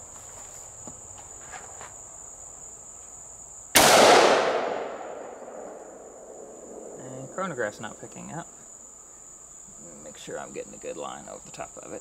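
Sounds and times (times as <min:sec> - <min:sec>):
insects buzzing: 0:00.0 - 0:12.0
rifle shot echoing: 0:03.8 - 0:07.0.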